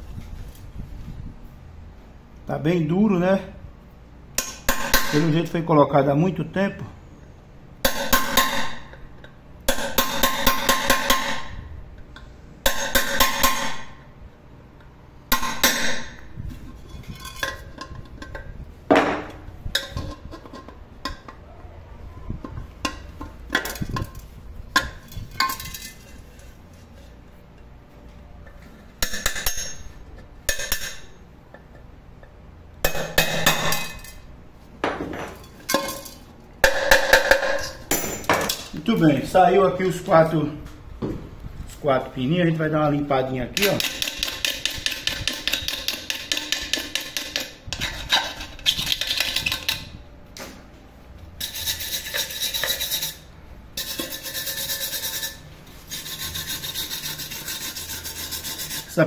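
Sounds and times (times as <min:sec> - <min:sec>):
metal clinks and scrapes: 0:16.6 - 0:18.5, 0:23.5 - 0:27.2, 0:35.1 - 0:36.3.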